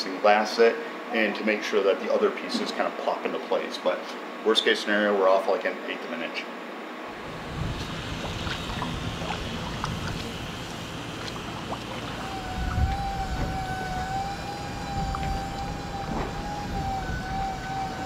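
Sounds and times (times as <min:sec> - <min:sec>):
low rumble: 0:07.1 - 0:17.8
wavering high tone: 0:12.2 - 0:18.0.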